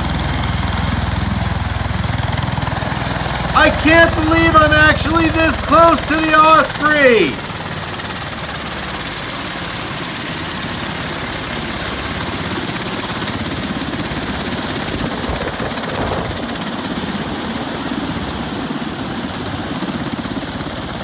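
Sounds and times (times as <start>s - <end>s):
tiltrotor aircraft running: 0.0s - 21.0s.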